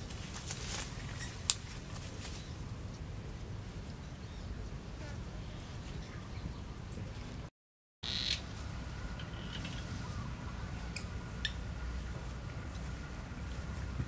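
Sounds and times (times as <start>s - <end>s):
rustling in undergrowth: 0.0s - 6.3s, 8.0s - 14.0s
steady low rumble: 8.4s - 14.0s.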